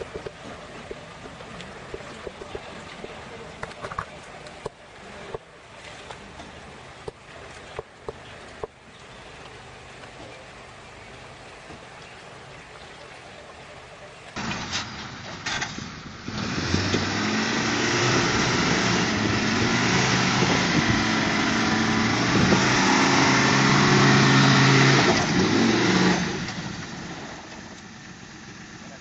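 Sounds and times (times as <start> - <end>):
pickup truck engine revving hard: 15.5 - 27.3.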